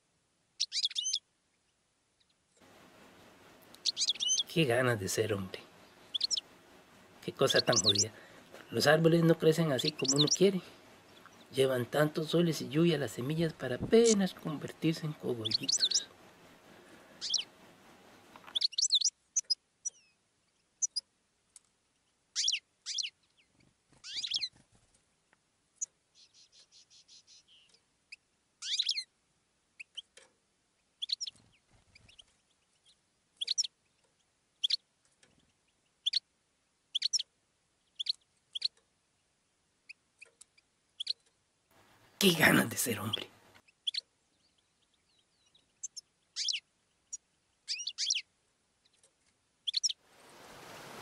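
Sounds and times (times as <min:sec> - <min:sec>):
bird trill: 0:00.6 - 0:01.3, 0:03.7 - 0:04.5, 0:06.0 - 0:06.5, 0:07.5 - 0:08.2, 0:09.2 - 0:10.5, 0:14.0 - 0:16.1, 0:17.2 - 0:17.5, 0:18.5 - 0:20.2, 0:20.8 - 0:21.1, 0:22.3 - 0:24.6, 0:25.8 - 0:29.1, 0:31.0 - 0:33.8, 0:34.6 - 0:34.8, 0:36.0 - 0:36.3, 0:36.9 - 0:37.3, 0:37.9 - 0:38.8, 0:39.9 - 0:41.3, 0:42.5 - 0:49.0, 0:49.6 - 0:50.0
birds chirping: 0:00.6 - 0:21.1, 0:21.9 - 0:24.6, 0:25.7 - 0:51.0.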